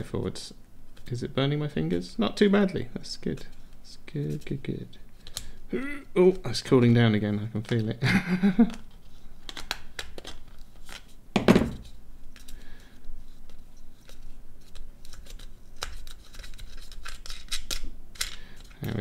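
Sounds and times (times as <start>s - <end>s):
thump: 11.4s - 11.8s.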